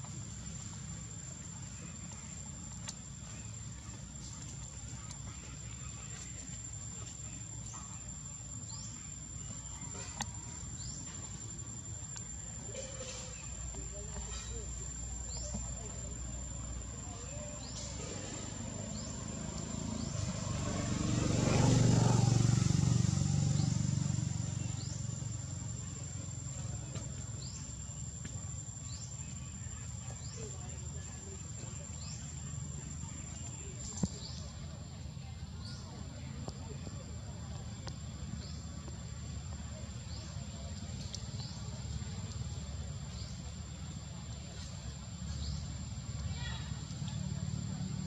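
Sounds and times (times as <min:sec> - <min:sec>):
high insect drone: 0:00.0 - 0:34.6
vehicle engine rumble: 0:00.0 - 0:48.0.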